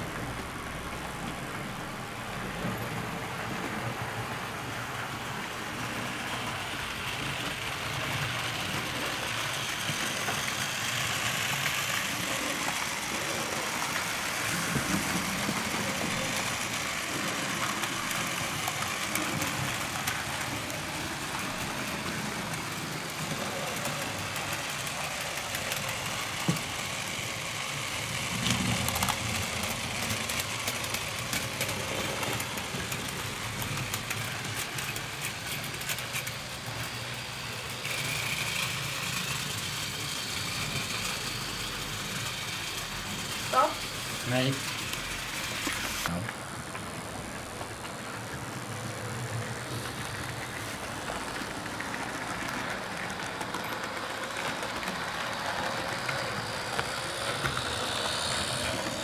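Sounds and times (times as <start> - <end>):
model train running on track: 0.0 - 59.0.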